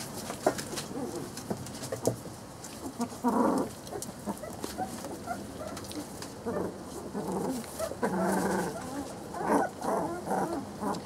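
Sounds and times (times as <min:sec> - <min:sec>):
puppies calling: 0:02.8 - 0:11.0.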